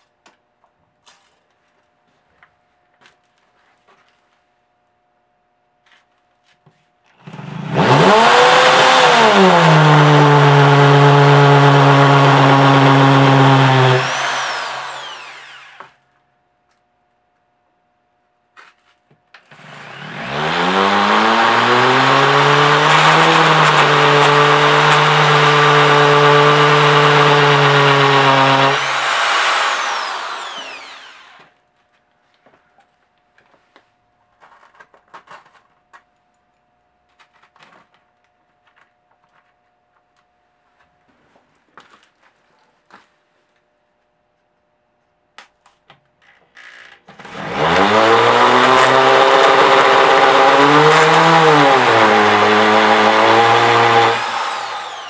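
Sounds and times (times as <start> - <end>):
electric drill boring into concrete: 7.3 - 16.0, 19.5 - 31.5, 47.2 - 55.0.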